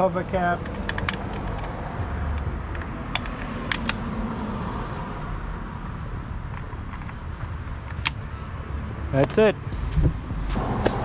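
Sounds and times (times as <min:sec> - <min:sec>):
plastic caps clicking: 0:00.6 - 0:04.0
steady low rumble: 0:09.6 - 0:11.0.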